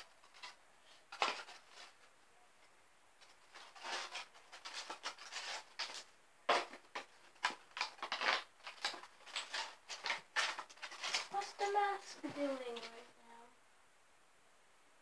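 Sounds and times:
hands rubbing and scraping: 3.2s - 13.1s.

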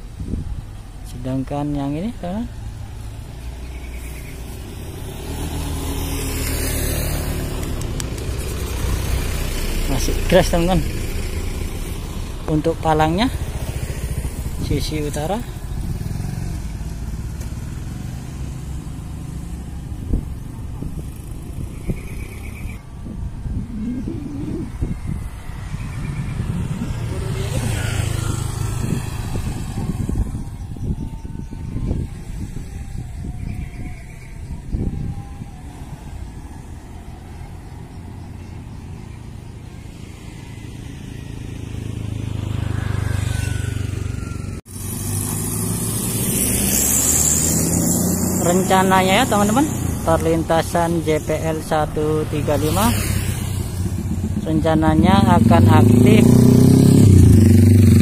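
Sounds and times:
road noise: 0.0s - 58.0s
vehicle engine rumbling: 0.0s - 58.0s
vehicle engine running: 43.9s - 58.0s.

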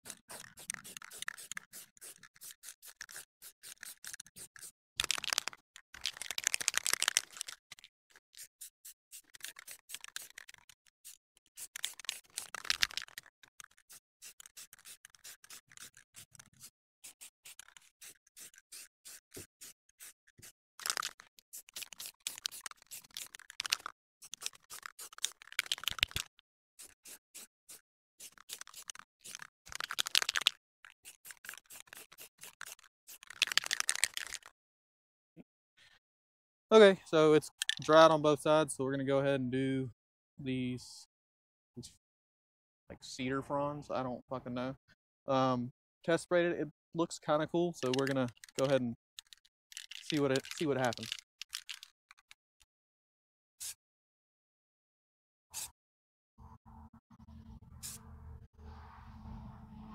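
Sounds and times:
spray paint can hissing: 0.0s - 5.4s, 6.1s - 34.4s, 49.8s - 51.8s.

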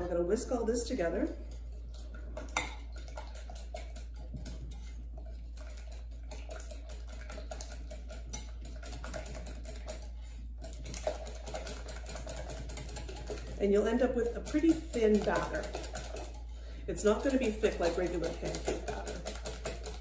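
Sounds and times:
low steady hum: 0.0s - 20.0s
whisk clicking in bowl: 1.2s - 20.0s.

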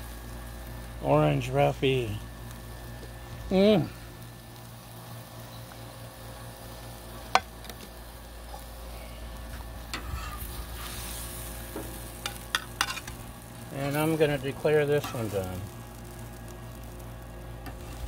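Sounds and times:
fish fillet sizzling on griddle: 0.0s - 18.0s
metal spatula scraping: 10.0s - 11.2s, 12.3s - 13.2s.

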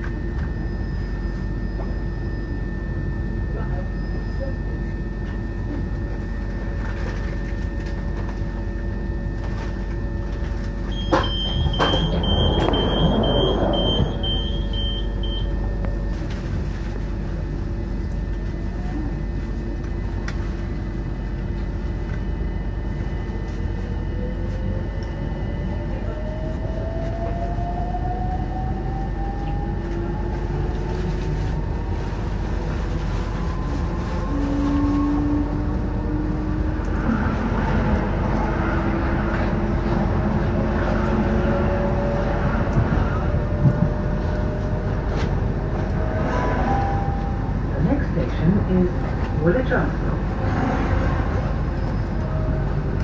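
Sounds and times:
train whine rising in pitch: 0.0s - 6.8s, 7.8s - 16.2s, 24.0s - 53.0s
train rumble with motor hum: 0.0s - 53.0s
short high beeps: 10.9s - 15.5s.

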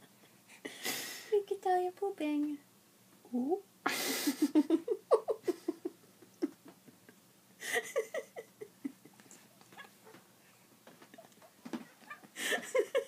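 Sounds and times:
soft breathy laughter: 3.8s - 9.8s, 11.0s - 13.0s.

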